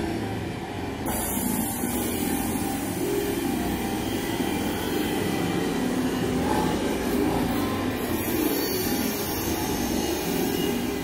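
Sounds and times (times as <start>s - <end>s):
hiss: 1.0s - 3.4s.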